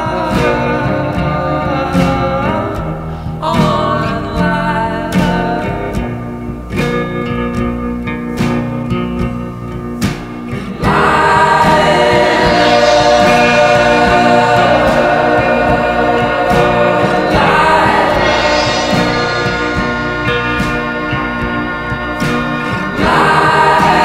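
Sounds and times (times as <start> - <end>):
choir singing: 0.0 - 2.8, 10.7 - 24.0
plucked guitar: 0.0 - 24.0.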